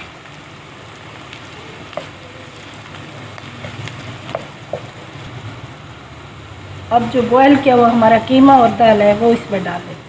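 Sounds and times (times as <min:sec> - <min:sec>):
wooden spatula stirring in wok: 0:00.0 - 0:05.7
onions sizzling in hot oil: 0:00.0 - 0:10.0.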